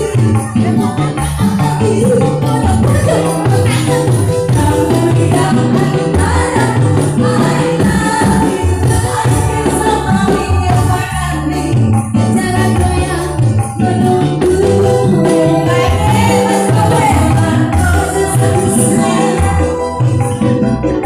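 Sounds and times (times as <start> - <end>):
woman singing into a microphone: 0.0 - 20.7
bouncing bass line: 0.0 - 21.0
tambourine-like percussion: 0.0 - 21.0.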